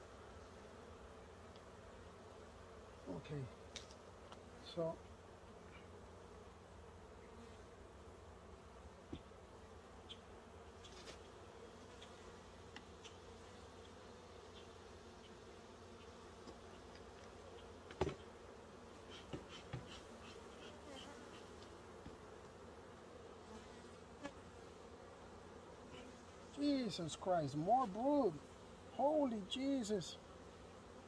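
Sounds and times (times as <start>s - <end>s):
honeybees buzzing: 0.0s - 31.0s
clicks and knocks from hive frames: 12.0s - 13.2s, 16.4s - 18.4s, 19.0s - 22.6s.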